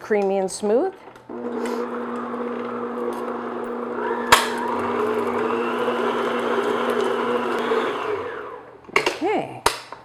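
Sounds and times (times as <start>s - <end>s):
stand mixer motor humming: 1.3s - 8.7s.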